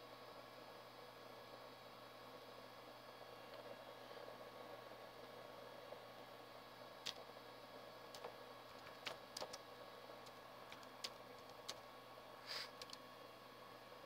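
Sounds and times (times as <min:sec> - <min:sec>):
room hiss: 0:04.0 - 0:14.0
keyboard key clicks: 0:08.1 - 0:09.6.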